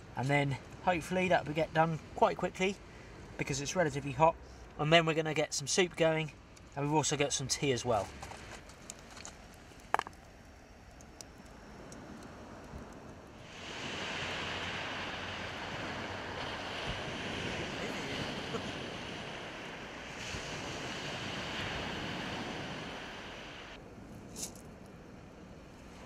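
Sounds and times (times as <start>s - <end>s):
surf washing over shingle: 13.3s - 23.8s.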